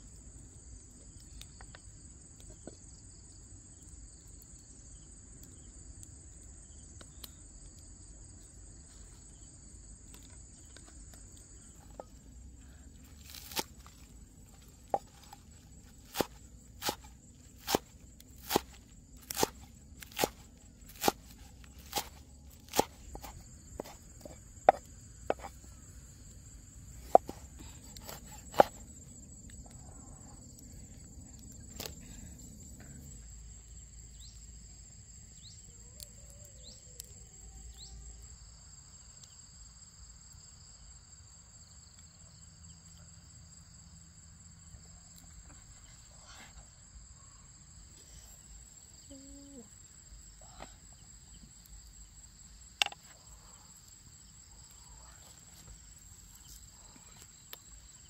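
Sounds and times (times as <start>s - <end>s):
insects trilling: 0.0s - 58.0s
knife chopping on wooden board: 16.0s - 25.6s, 27.0s - 28.8s.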